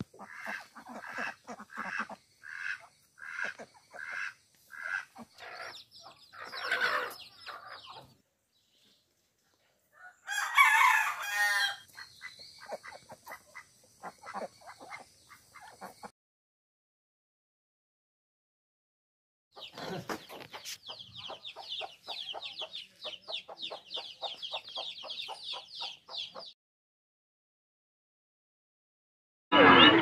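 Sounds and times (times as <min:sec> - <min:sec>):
chickens clucking: 0:00.0 - 0:08.2, 0:11.9 - 0:16.1, 0:19.6 - 0:26.6
rooster crowing: 0:10.0 - 0:11.9.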